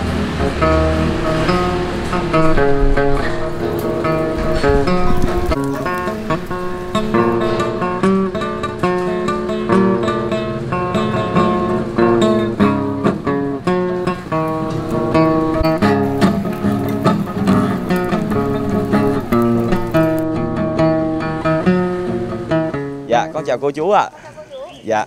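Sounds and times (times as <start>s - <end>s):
acoustic guitar playing: 0.0s - 24.8s.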